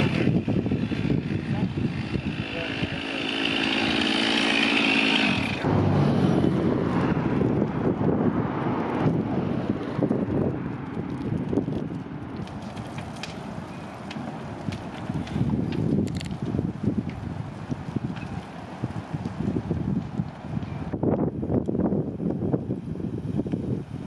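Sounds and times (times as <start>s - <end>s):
chainsaw running: 0.0s - 6.6s
flames crackling: 0.0s - 24.0s.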